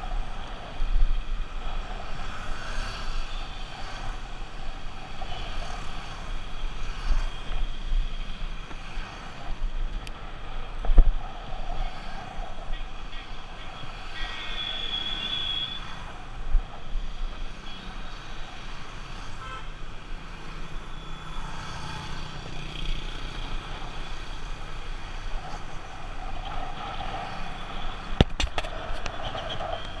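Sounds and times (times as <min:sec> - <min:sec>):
vehicles passing: 0:00.0 - 0:30.0
vehicle horn: 0:19.4 - 0:19.7.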